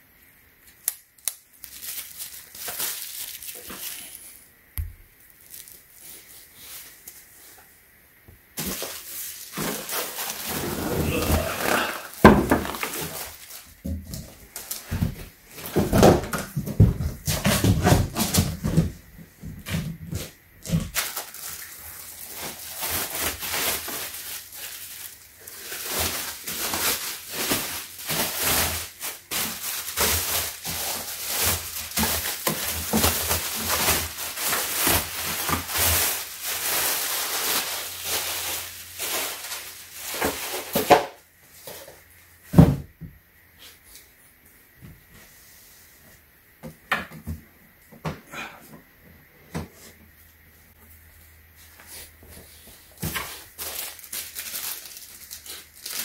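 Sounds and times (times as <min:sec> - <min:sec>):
plastic bag crinkling: 0:01.1 - 0:04.5, 0:05.2 - 0:07.3, 0:08.6 - 0:16.3, 0:20.6 - 0:41.2, 0:52.9 - 0:56.0
cardboard packaging handled: 0:08.6 - 0:42.8.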